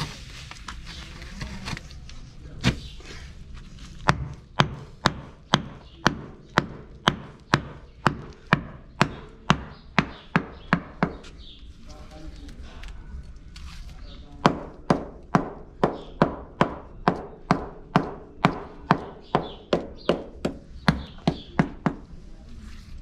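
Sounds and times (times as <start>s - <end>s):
hammer knocking bricks: 4.0s - 11.3s, 14.4s - 22.1s.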